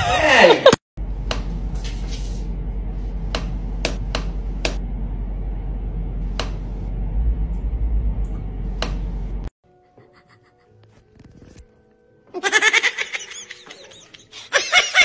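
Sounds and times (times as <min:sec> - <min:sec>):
steady low hum: 0:01.0 - 0:09.5.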